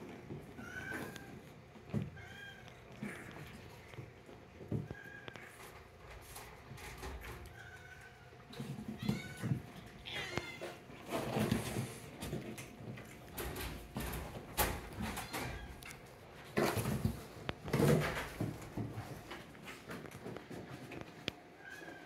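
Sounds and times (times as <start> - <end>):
cats meowing: 0.3 - 5.8, 6.9 - 11.1, 21.5 - 22.0.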